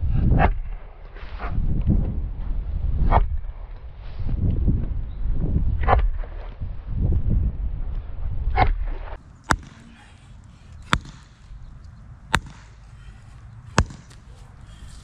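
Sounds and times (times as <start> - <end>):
sledgehammer striking wooden stake: 8.6 - 11.5, 12.2 - 14.4.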